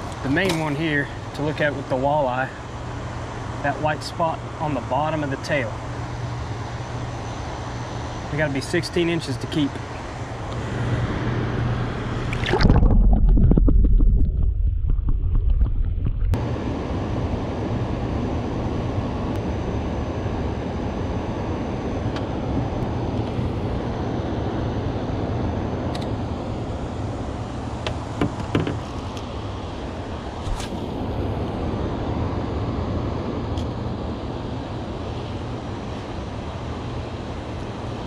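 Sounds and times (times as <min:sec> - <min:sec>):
low hum: 0:09.7 - 0:27.8
rush of water: 0:12.3 - 0:14.7.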